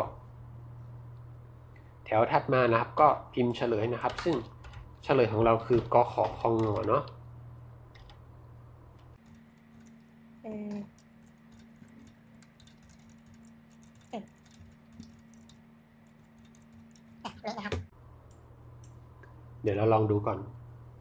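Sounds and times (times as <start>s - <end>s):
typing on computer keyboard: 5.8s - 7.2s, 7.9s - 8.2s, 9.2s - 10.2s, 10.9s - 17.2s.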